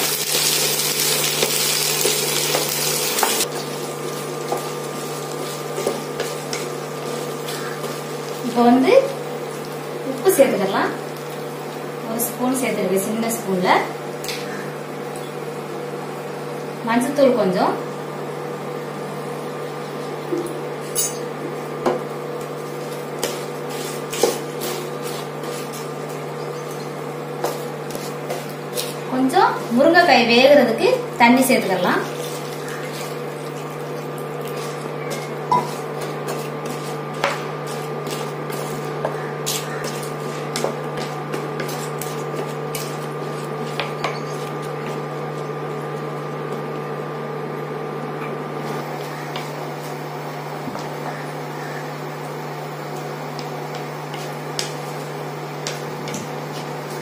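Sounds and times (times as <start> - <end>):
cooktop humming: 0.0 - 57.0
spatula scraping a pan: 34.6 - 45.0.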